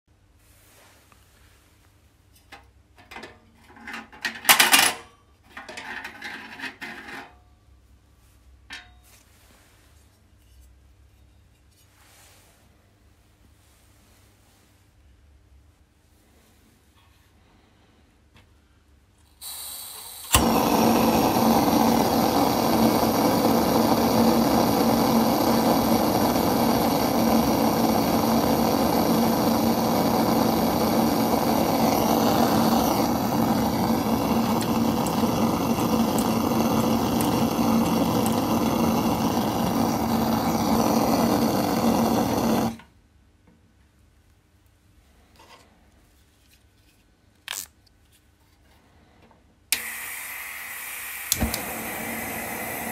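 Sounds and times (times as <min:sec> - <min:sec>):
gas hissing: 0:19.4 - 0:42.8, 0:49.7 - 0:52.9
gas burner roaring: 0:19.4 - 0:42.9, 0:49.7 - 0:52.9
igniter clicking: 0:20.2 - 0:42.8, 0:49.7 - 0:52.9.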